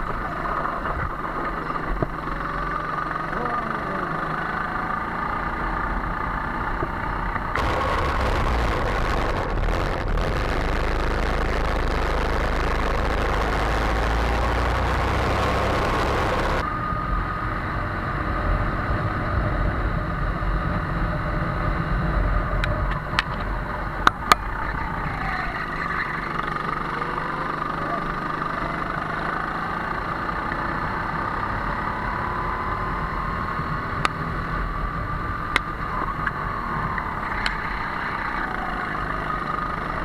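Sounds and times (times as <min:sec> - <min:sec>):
go-kart engines running: 0:00.0 - 0:40.0
loud rushing noise: 0:07.6 - 0:16.8.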